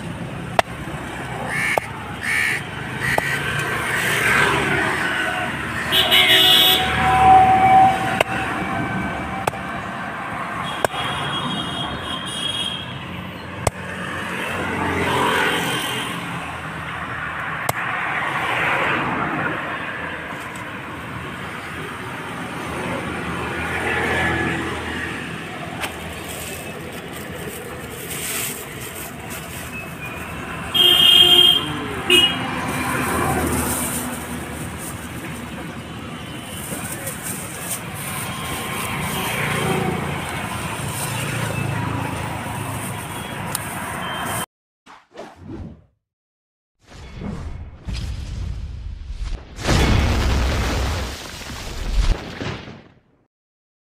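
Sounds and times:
road traffic passing: 0.0s - 44.5s
car horn honking: 5.9s - 8.5s, 10.6s - 13.0s, 30.7s - 32.6s.

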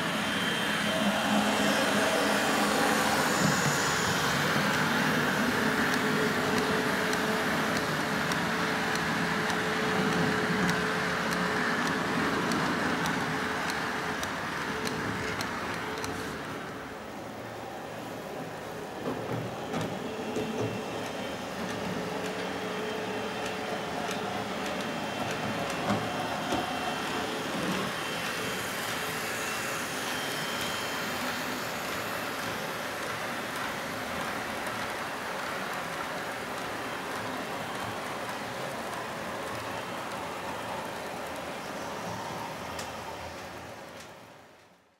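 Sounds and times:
model train motor whirring: 21.0s - 40.3s.

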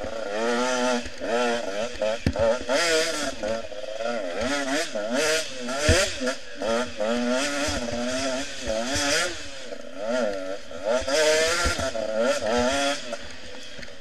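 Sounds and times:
motorcycle engine revving: 0.0s - 14.0s
thumps over bumps: 1.9s - 3.6s, 5.8s - 6.4s, 11.0s - 12.0s.

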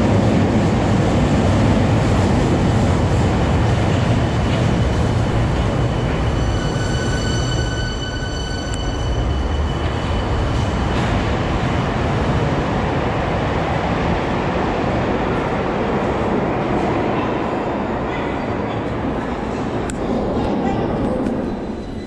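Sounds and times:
tram high whine: 0.0s - 16.8s
tram rumble: 0.0s - 22.0s.

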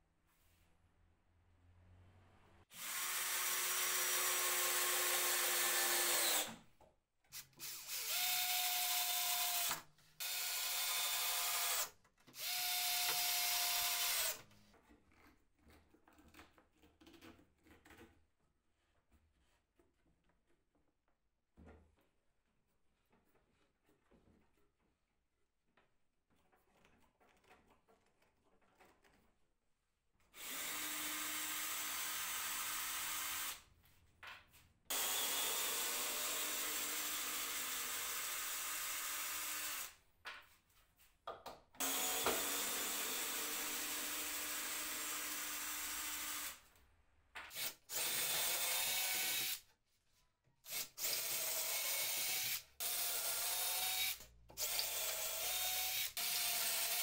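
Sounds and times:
cordless drill driving screws: 2.7s - 6.6s, 7.6s - 14.4s, 30.4s - 33.6s, 34.9s - 40.0s, 41.8s - 46.6s, 47.5s - 49.6s, 50.7s - 57.0s
drill boring holes in wood: 2.7s - 6.6s, 7.6s - 14.4s, 30.4s - 33.6s, 34.9s - 40.0s, 41.8s - 46.6s, 47.5s - 49.6s, 50.7s - 57.0s.

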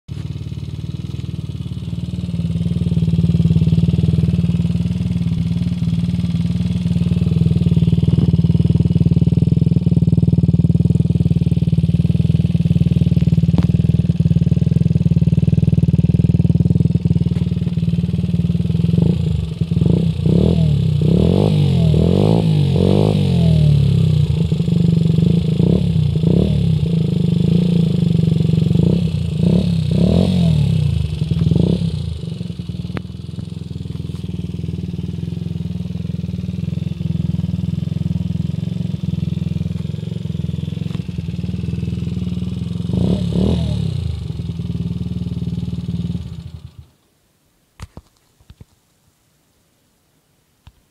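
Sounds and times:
scooter engine revving: 0.2s - 46.9s.

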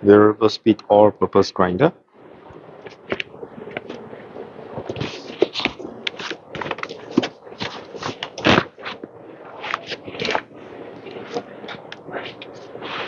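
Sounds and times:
cardboard box rustling and scraping: 4.8s - 9.0s, 9.6s - 10.5s.

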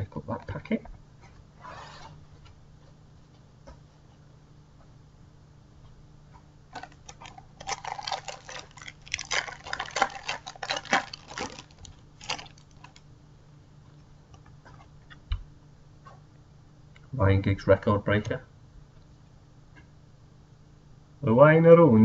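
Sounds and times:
foil packet crinkling and tearing: 6.7s - 13.0s.

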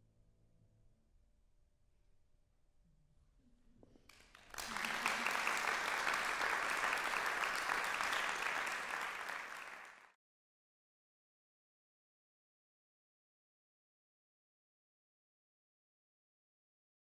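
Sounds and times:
audience applauding: 4.1s - 10.2s.

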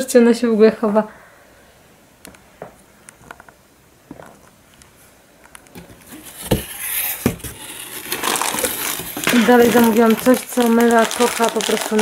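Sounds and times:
packaging rustling and crinkling: 5.7s - 12.0s.

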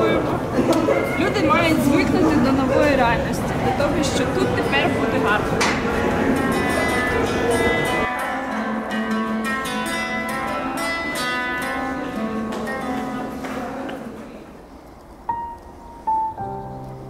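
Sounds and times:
acoustic guitar plucked notes: 4.9s - 14.2s.

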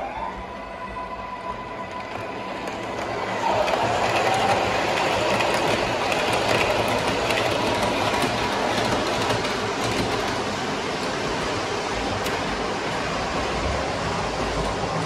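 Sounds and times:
model train wheels clattering: 3.4s - 10.7s.

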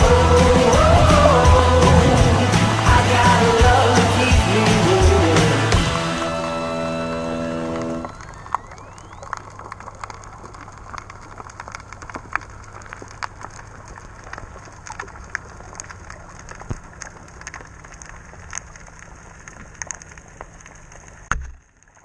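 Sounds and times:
muffled underwater hiss and hum: 0.0s - 11.0s
sharp clicks and crackles: 7.7s - 22.0s.

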